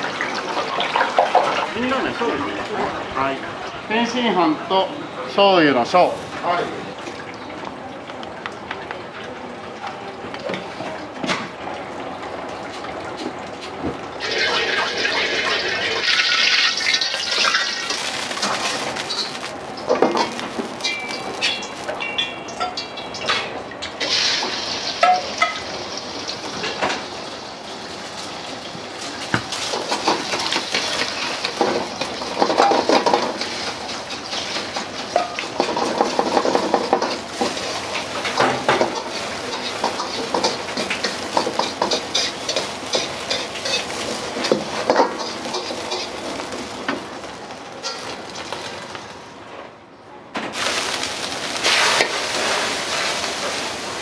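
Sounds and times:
egg sizzling in hot oil: 14.2 - 23.2, 24.0 - 49.2, 50.6 - 54.0
metal ladle scraping pan: 31.5 - 46.2.

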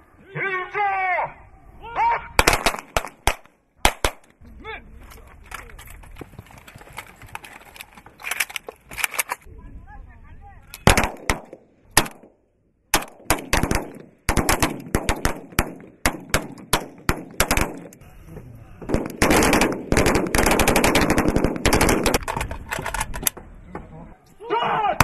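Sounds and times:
automatic gunfire: 2.4 - 4.2, 10.8 - 12.2, 12.9 - 17.9, 18.9 - 22.3.

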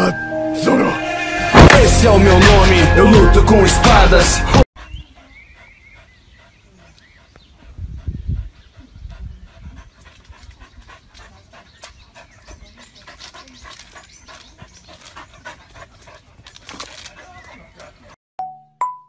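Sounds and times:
dog panting: 4.8 - 18.2.

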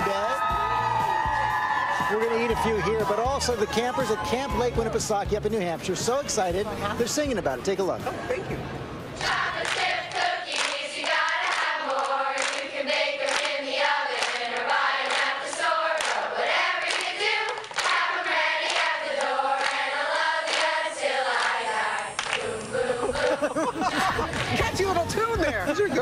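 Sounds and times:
girls singing in unison: 9.2 - 24.6
hand claps: 10.5 - 12.7, 13.3 - 13.5, 16.9 - 18.0, 22.2 - 22.4.

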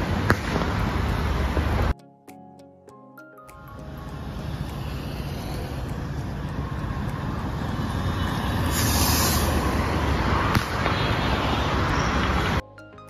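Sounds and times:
firework rocket whooshing upward: 8.2 - 11.8.

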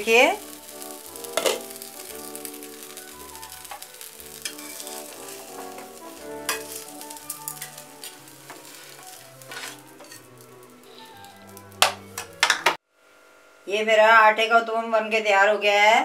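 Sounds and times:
batter sizzling in oil: 0.0 - 12.8
spatula scraping and tapping pan: 1.2 - 1.8, 3.6 - 11.0, 11.7 - 12.8.

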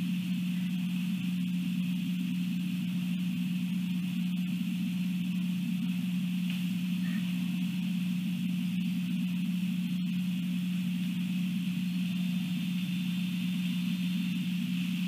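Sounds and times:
low mechanical hum: 0.0 - 15.0
high hiss: 11.7 - 15.0.

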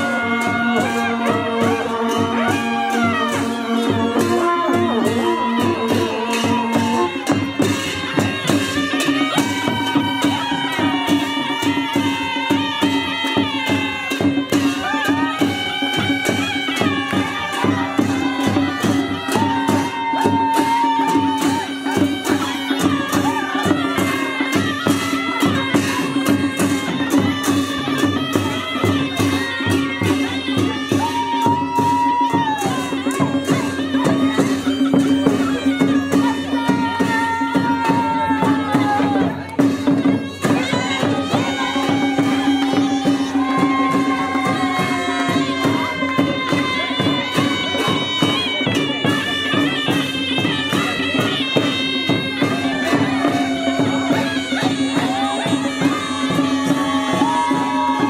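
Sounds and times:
cymbals clashing: 0.0 - 58.0
drums beating fast: 0.0 - 58.0
shrill reed horns melody: 39.7 - 58.0.

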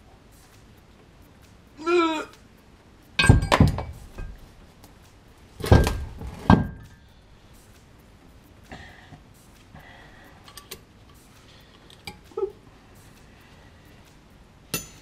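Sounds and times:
person grunting: 1.8 - 2.3
heavy metal part knocking on bench: 3.2 - 4.4
metallic ring: 3.2 - 4.5, 14.7 - 15.0.

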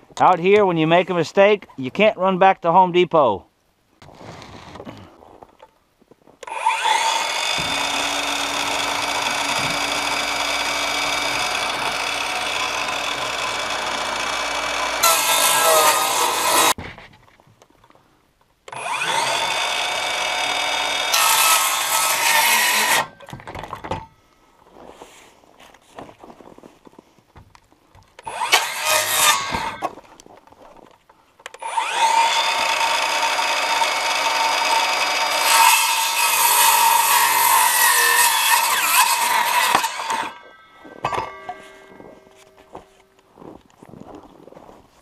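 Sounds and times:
circular saw cutting plywood: 6.4 - 16.8, 18.7 - 23.3, 28.2 - 29.9, 31.6 - 42.7.

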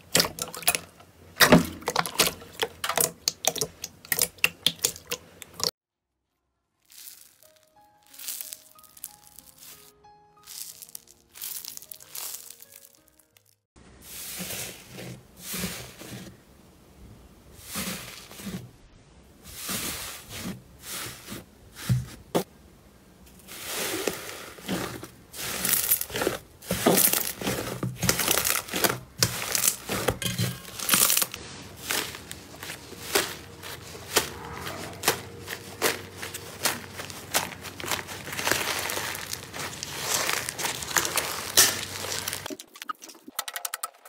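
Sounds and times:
slime squishing and popping: 1.7 - 5.7, 10.5 - 13.4, 24.8 - 34.4, 35.0 - 43.7.

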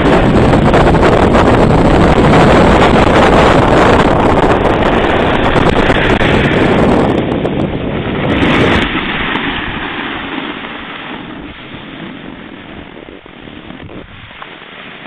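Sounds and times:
skis sliding over snow: 0.0 - 15.0
wind on microphone: 0.0 - 15.0.

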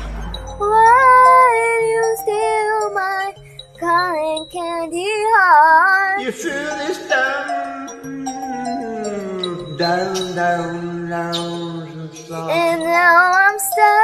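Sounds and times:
karaoke backing track: 0.0 - 14.0
girl singing: 0.5 - 9.0, 12.3 - 14.0.

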